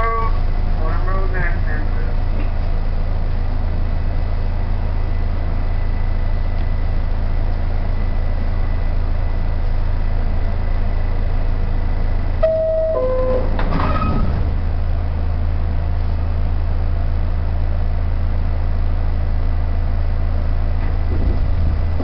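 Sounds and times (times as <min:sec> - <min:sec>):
subway car equipment hum and whine: 0:00.0 - 0:22.0
two-note door-closing chime: 0:12.4 - 0:14.3.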